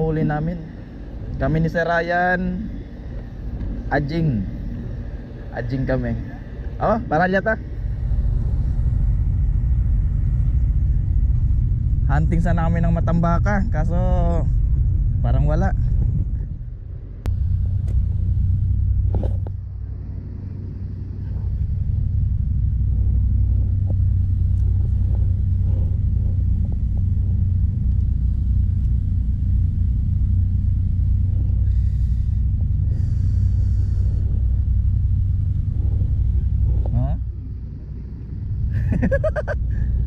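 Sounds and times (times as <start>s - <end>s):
wind buffeting microphone: 0.0s - 40.0s
short hisses: 31.6s - 34.5s.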